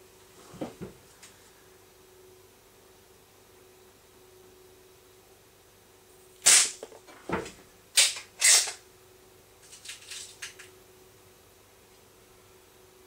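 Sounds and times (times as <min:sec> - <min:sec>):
air pistol firing cracks: 0:06.4 - 0:06.8.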